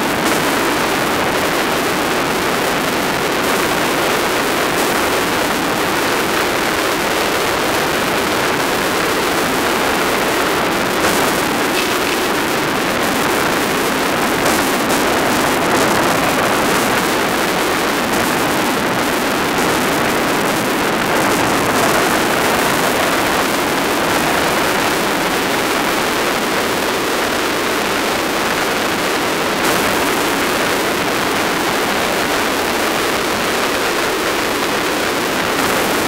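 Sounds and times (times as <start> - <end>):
rushing wind: 0.0 - 36.0
road noise on gravel: 4.6 - 25.1.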